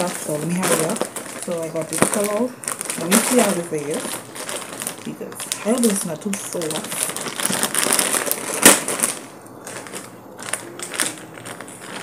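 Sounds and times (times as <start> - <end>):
plastic bag rustling: 0.0 - 12.0.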